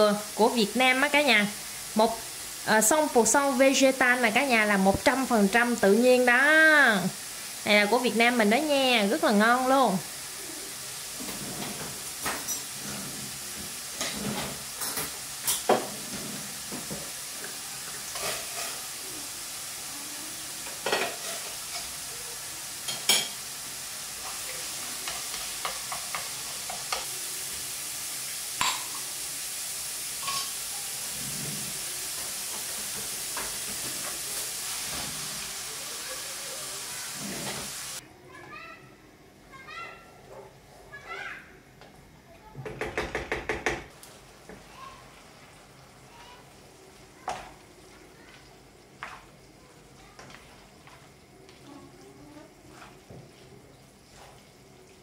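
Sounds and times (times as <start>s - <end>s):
meat sizzling in a frying pan: 0.0s - 38.0s, 43.9s - 55.0s
chopsticks scraping a pan: 11.2s - 13.4s, 14.0s - 16.6s, 18.1s - 19.0s, 20.6s - 22.0s, 37.0s - 38.0s, 52.6s - 53.1s, 54.1s - 54.5s.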